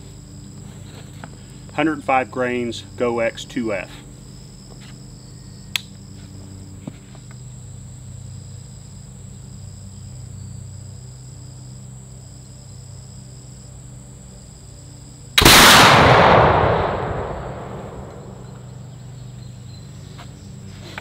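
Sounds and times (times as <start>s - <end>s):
broken insect trill: 0.0s - 15.9s, 16.8s - 21.0s
insects chirring: 0.0s - 21.0s
low steady hum: 0.0s - 21.0s
sharp click: 5.7s - 5.9s.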